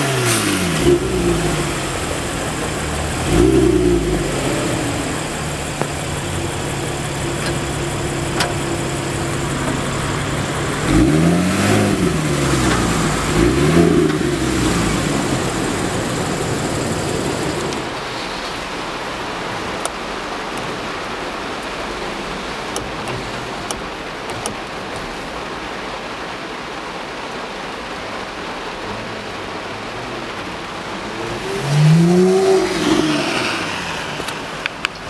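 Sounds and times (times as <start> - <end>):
car engine idling and revving: 0.0 - 35.0
rain hissing: 0.0 - 35.0.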